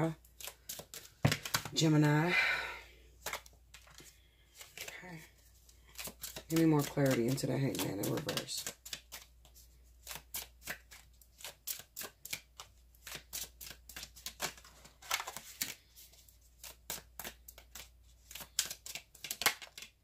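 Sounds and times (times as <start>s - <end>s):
cards being shuffled by hand: 0.0s - 2.3s, 3.1s - 20.0s.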